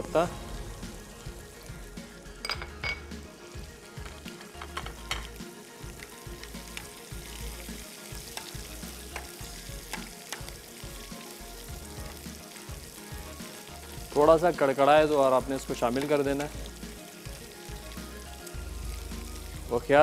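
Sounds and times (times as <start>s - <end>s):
spices sizzling in hot oil: 0.0s - 20.0s.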